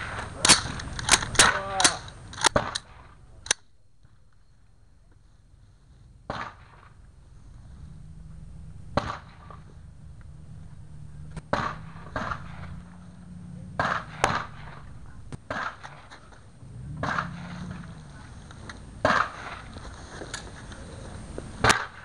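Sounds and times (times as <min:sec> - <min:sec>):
rifle shots cracking: 0:00.0 - 0:03.6, 0:06.3 - 0:07.0, 0:08.9 - 0:09.8, 0:11.3 - 0:20.6, 0:21.6 - 0:22.0
steady low hum: 0:00.0 - 0:22.0.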